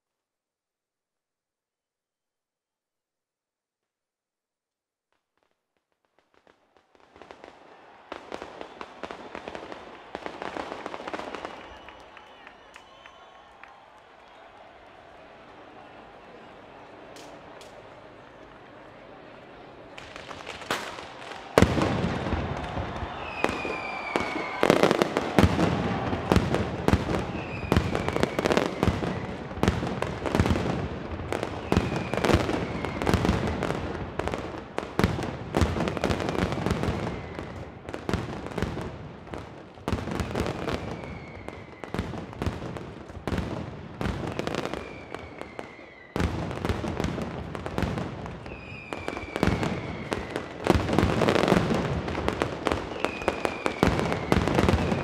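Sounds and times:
short falling whistles: 8.4 - 14.6, 22.6 - 25.1, 27.2 - 29.4, 31.6 - 33.3, 40.6 - 42.0, 44.3 - 46.2, 48.5 - 50.5, 52.9 - 55.0.

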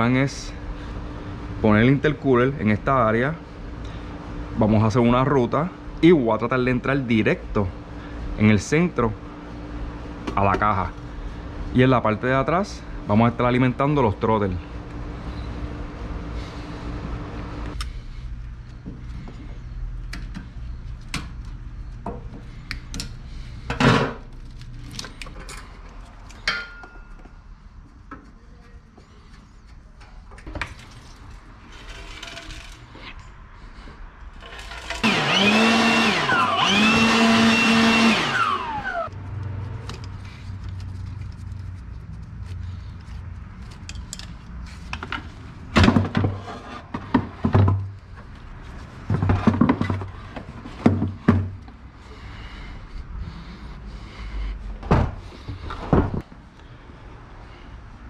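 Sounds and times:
power tool motor whining: 34.4 - 39.1
metal parts and tools clicking: 43.6 - 44.6.

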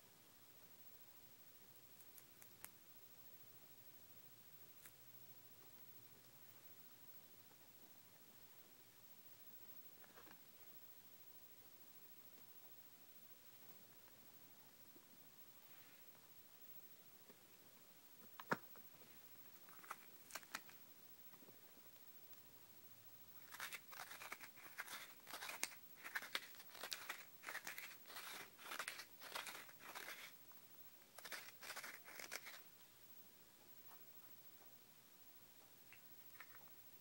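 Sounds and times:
crinkly crunchy rustling: 19.5 - 20.8, 23.4 - 30.4, 31.1 - 32.7.

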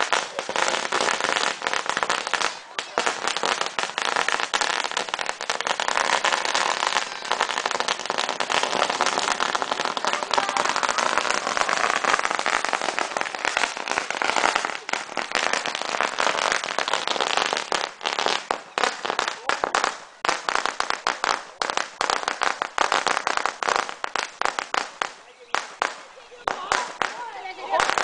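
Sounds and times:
firecrackers crackling: 0.0 - 28.0.

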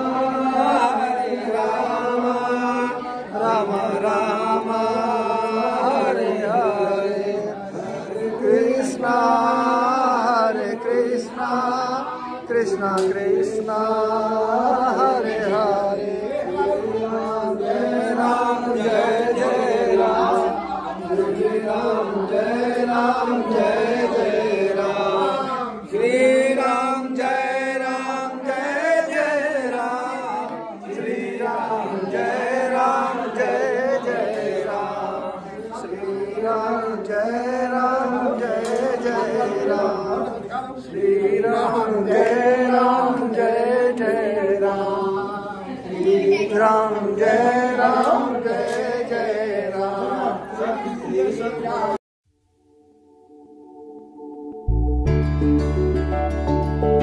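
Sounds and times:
group chanting a hymn: 0.0 - 52.0.

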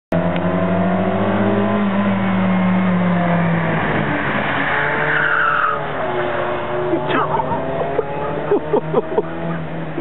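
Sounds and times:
car engine running: 0.1 - 10.0
tyres squealing: 5.1 - 5.9.

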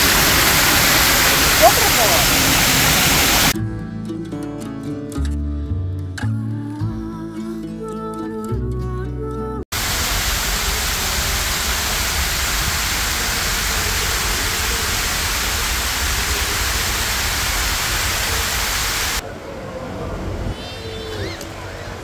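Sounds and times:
water rushing down cascade: 0.0 - 3.6, 9.8 - 19.2
background music: 3.6 - 9.6.

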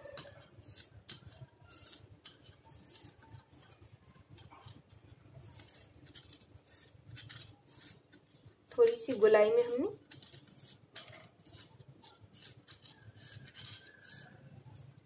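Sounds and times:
scissors snipping cloth: 0.0 - 4.8.

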